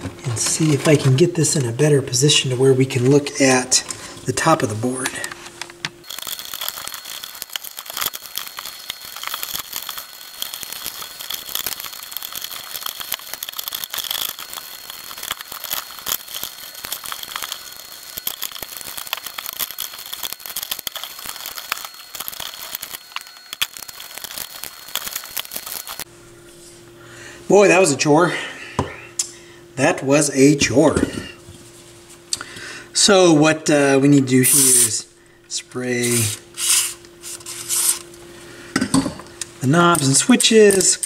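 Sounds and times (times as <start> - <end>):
wires rustling and clips clicking: 4.4 - 26.1, 39.7 - 41.0
faint high whine: 6.0 - 31.4.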